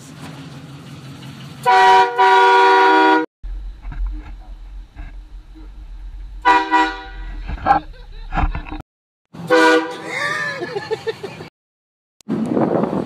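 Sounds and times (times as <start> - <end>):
air horn blasting chord: 1.6 - 3.3, 6.4 - 7.4, 9.5 - 10.1
low vehicle rumble: 2.7 - 8.8.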